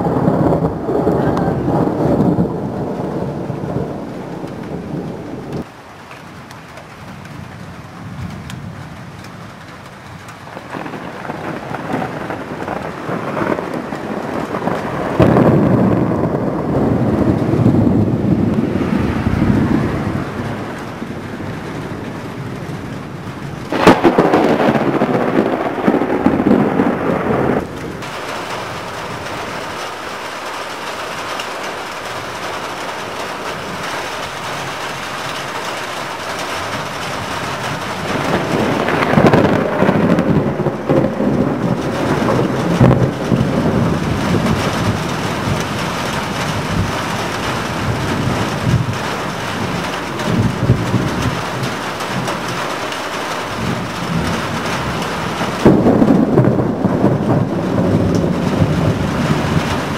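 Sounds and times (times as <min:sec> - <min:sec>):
sharp thunder crack: 0:00.0 - 0:05.7, 0:10.5 - 0:59.9
thunder rumbling: 0:00.0 - 0:05.7, 0:07.0 - 0:59.9
steady rain: 0:00.0 - 0:59.9.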